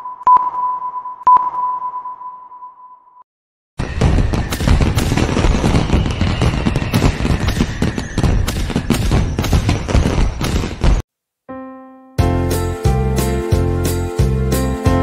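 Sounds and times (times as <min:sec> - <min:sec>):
fireworks bangs and crackles: 0:03.8 - 0:11.1
faint falling whistle: 0:05.5 - 0:09.9.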